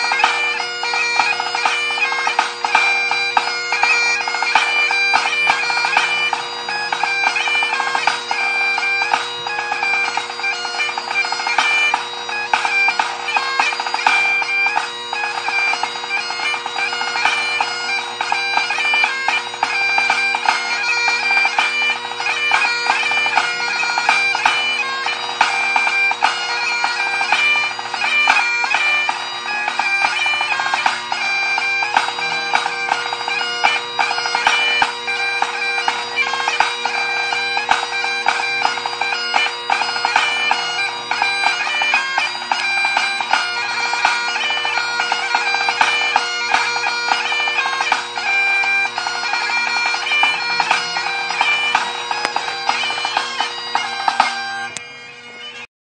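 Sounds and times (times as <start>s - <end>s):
bagpipe playing: 0.0s - 55.7s
snare drum: 50.3s - 51.0s.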